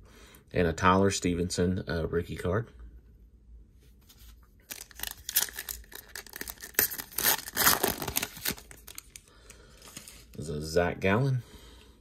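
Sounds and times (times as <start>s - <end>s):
foil wrapper tearing and crinkling: 4.6s - 9.2s.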